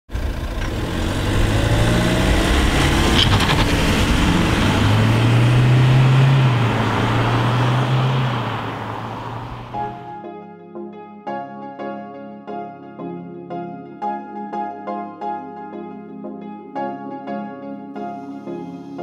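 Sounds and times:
car engine revving: 0.1s - 10.1s.

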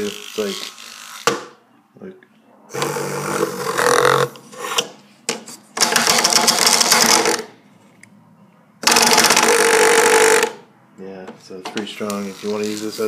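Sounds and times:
vibrating buzz rattling on wood: 8.8s - 10.6s.

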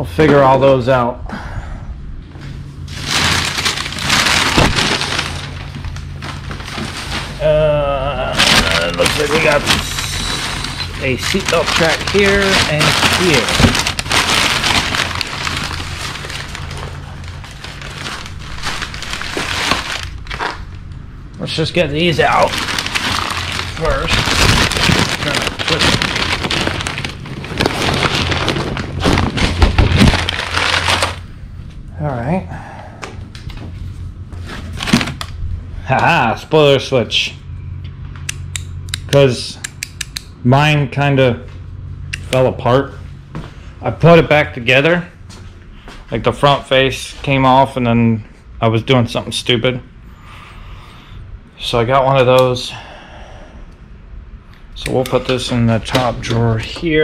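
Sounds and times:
packing paper rustling: 2.8s - 31.4s, 34.4s - 35.3s.

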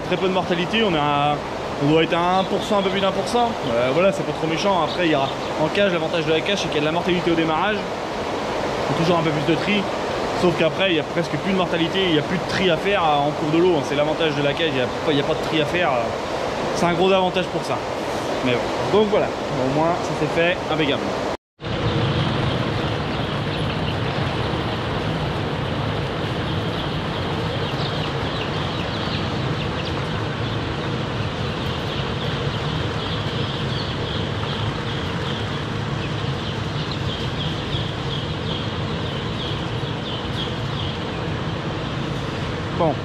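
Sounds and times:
steady machine hum: 0.0s - 43.0s
chicks peeping: 21.8s - 42.1s.

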